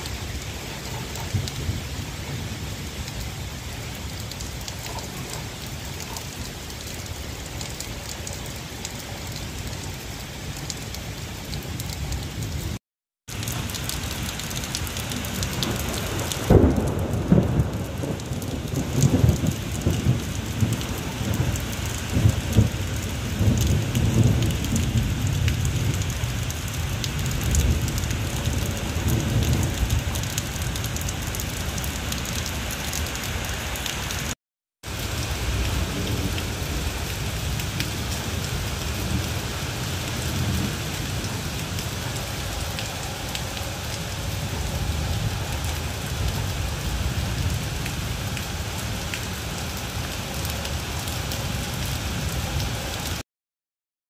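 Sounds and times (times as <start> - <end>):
steady rain falling: 0.0 - 53.2
low rumble of thunder: 0.8 - 6.1, 13.4 - 32.5, 35.0 - 50.1.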